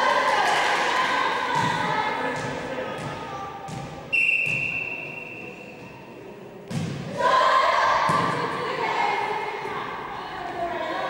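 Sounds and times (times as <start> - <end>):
referee's whistle: 4.1 - 5.8
volleyball serve thud: 6.7 - 7.2.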